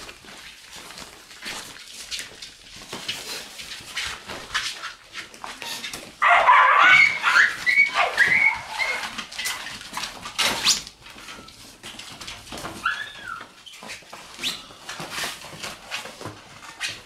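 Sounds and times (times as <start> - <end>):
paws scratching tent fabric: 0.0 - 17.0
puppies yipping and whining: 5.7 - 9.8, 12.6 - 14.9.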